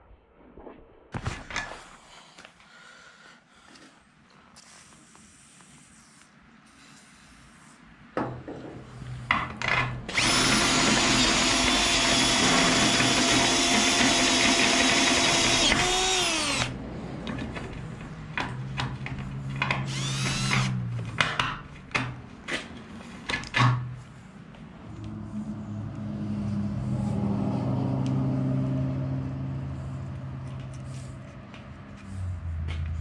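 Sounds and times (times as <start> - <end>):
cordless drill cutting steel: 10.1 - 16.8, 19.9 - 20.8
drill clicks: 10.1 - 16.8, 19.6 - 20.8.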